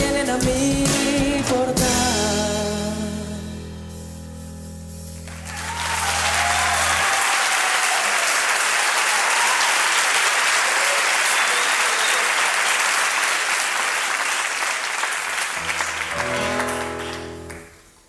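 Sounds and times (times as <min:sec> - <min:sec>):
audience applauding: 0:05.2 - 0:18.0.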